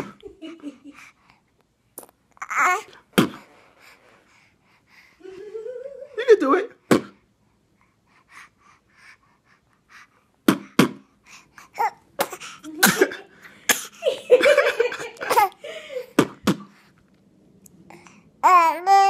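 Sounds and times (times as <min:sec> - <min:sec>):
baby making mouth pops: 0:02.0 - 0:02.5.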